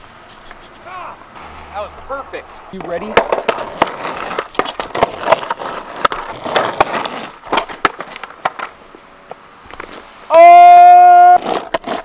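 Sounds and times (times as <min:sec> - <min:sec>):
skateboard wheels rolling on asphalt: 0:00.0 - 0:12.0
skateboard knocks: 0:02.8 - 0:08.8.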